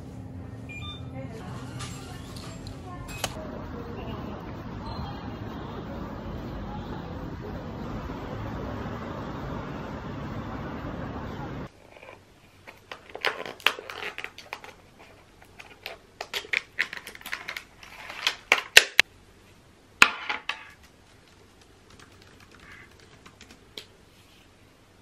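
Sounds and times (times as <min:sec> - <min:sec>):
plastic packaging crinkling: 0:12.7 - 0:19.0.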